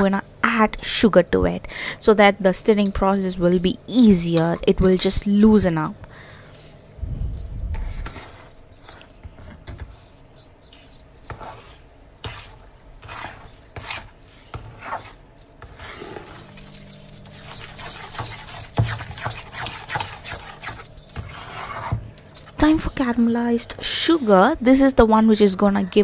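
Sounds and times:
metal spatula scraping a pan: 11.3 - 16.6.

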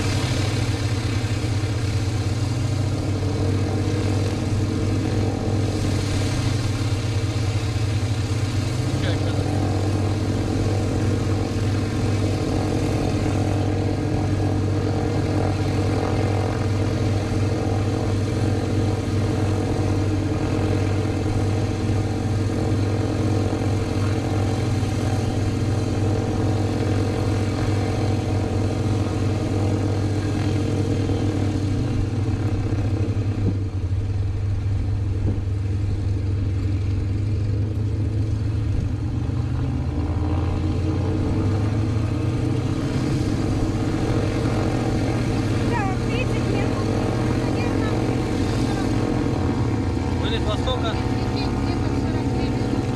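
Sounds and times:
aircraft engine droning: 0.0 - 52.9.

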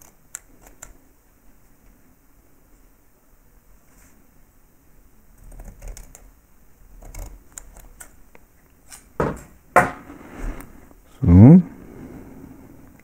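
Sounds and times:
hands clicking and rustling: 0.0 - 1.0, 7.0 - 9.9.

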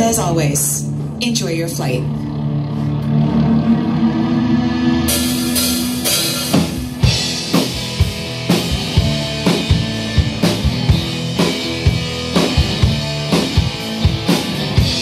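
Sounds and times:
live rock band playing: 0.0 - 15.0
steady drum beat: 5.1 - 15.0.

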